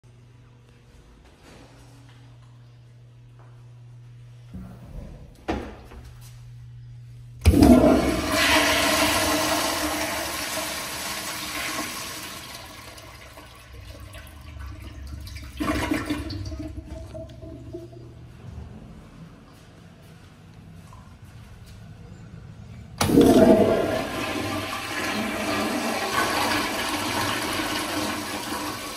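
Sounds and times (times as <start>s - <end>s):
toilet flushing water rush: 7.4s - 18.2s, 23.0s - 28.9s.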